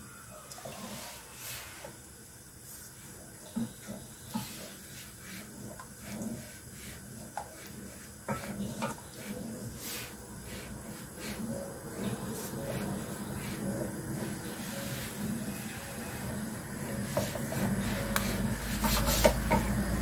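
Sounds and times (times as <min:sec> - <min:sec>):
liquid swishing in pot: 0:00.6 - 0:20.0
spatula knocking against pot: 0:18.2 - 0:19.8.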